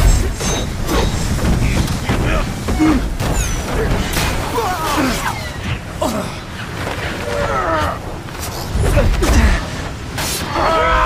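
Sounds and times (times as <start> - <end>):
men grunting and groaning: 0.0 - 8.2, 10.4 - 11.0
wind rushing over train roof: 0.0 - 10.5.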